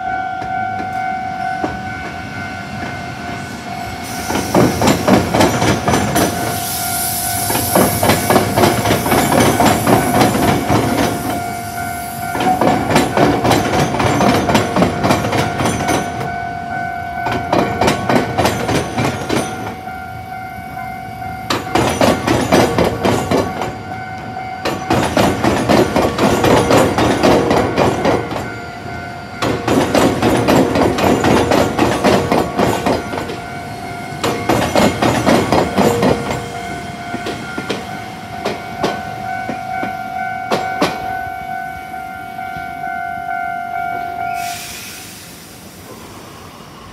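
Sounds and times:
level-crossing warning bell: 0.0s - 45.8s
train wheels clattering over joints: 4.0s - 6.6s, 7.5s - 11.4s, 12.3s - 16.3s, 17.2s - 19.8s, 21.5s - 23.8s, 24.6s - 28.5s, 29.4s - 33.5s, 34.1s - 41.1s.

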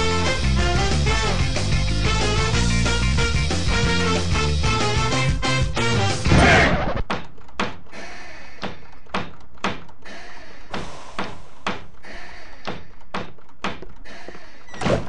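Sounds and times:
sharp knocks: 8.6s - 10.0s, 12.6s - 14.0s.

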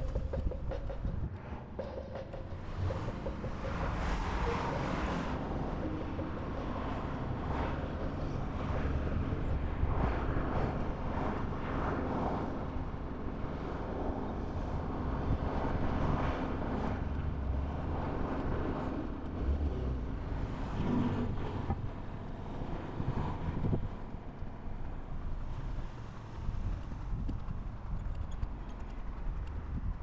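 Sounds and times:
cars passing on road: 0.0s - 30.0s
wind on microphone: 22.7s - 24.1s, 25.0s - 30.0s.

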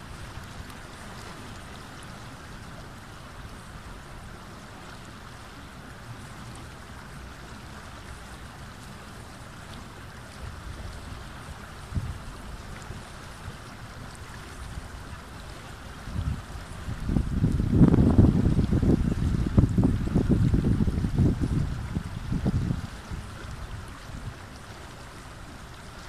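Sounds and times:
river flowing over rocks: 0.0s - 26.0s
wind buffeting microphone: 11.8s - 13.1s, 15.9s - 24.6s.

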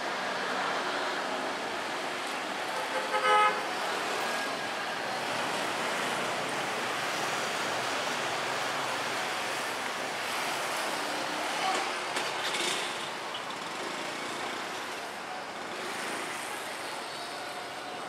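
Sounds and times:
street traffic passing: 0.0s - 18.0s
vehicle horn toot: 2.8s - 3.7s.

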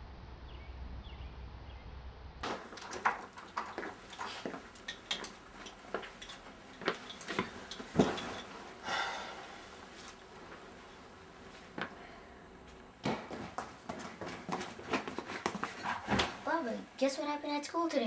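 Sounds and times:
footsteps on indoor floor: 2.4s - 8.8s, 12.6s - 16.4s
body dropping onto couch: 7.3s - 8.4s.

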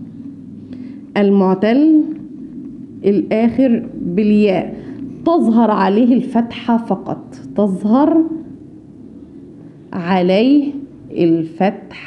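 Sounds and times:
woman speaking: 1.2s - 2.4s, 3.0s - 8.6s, 9.9s - 12.0s.

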